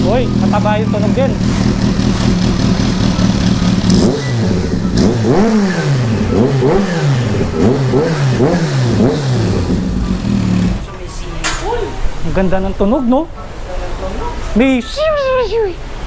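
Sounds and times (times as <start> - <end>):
motorcycle engine idling: 0.0 - 10.9
motorcycle engine revving: 0.0 - 10.9.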